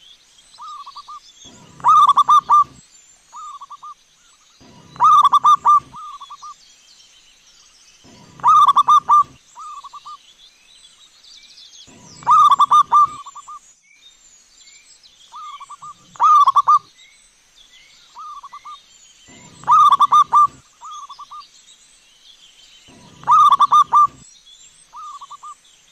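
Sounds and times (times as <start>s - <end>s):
small birds chirping: 0.0s - 25.9s
doves cooing: 1.5s - 2.8s, 4.6s - 6.4s, 8.1s - 10.0s, 11.9s - 13.4s, 15.4s - 16.8s, 19.3s - 21.3s, 22.9s - 24.2s.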